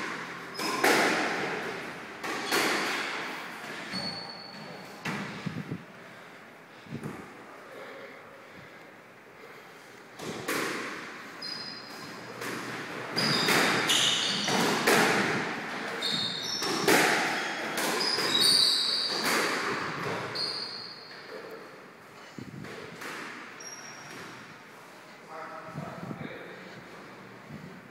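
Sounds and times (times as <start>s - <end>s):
squash ball cracks off rackets and walls: 0.0s - 3.9s, 10.2s - 11.2s, 11.9s - 20.4s
court shoes squeaking: 0.1s - 5.7s, 10.2s - 24.9s.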